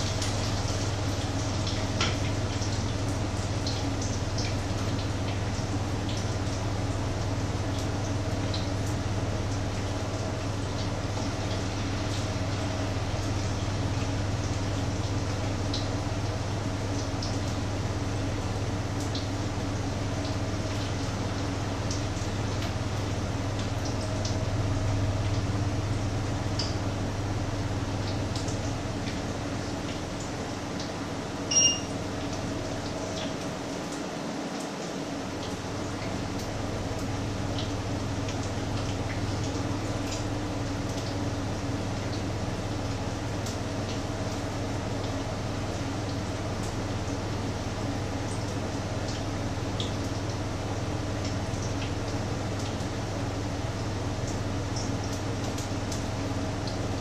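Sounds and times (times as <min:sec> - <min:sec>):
short electronic beep: 0:31.5 - 0:31.9.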